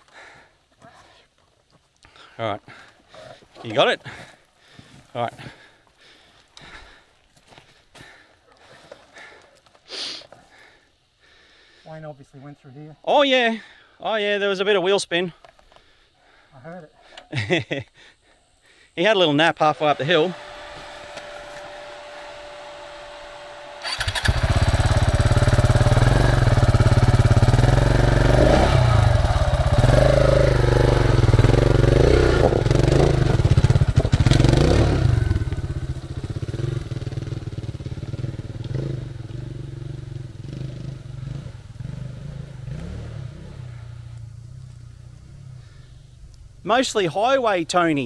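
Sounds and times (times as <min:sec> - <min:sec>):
dirt motorcycle engine revving: 0:19.5 - 0:46.6.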